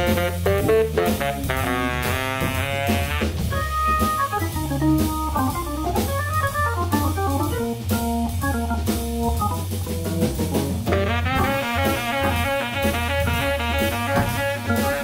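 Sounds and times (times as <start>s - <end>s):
drum kit and cymbals: 0.0s - 15.0s
jazz organ solo: 0.0s - 15.0s
low bass line: 0.0s - 15.0s.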